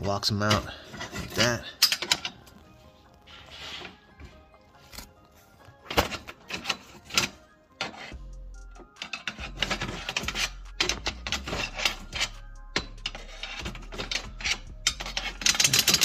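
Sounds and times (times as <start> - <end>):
hand tools scraping metal: 0.0 - 5.2, 5.8 - 16.0.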